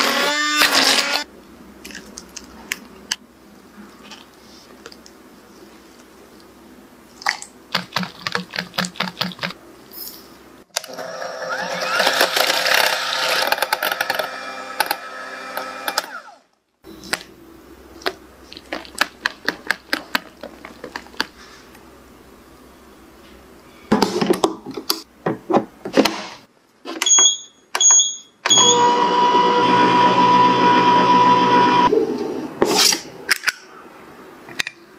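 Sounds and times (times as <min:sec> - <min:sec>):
appliance button beeps: 0:27.0 - 0:28.8.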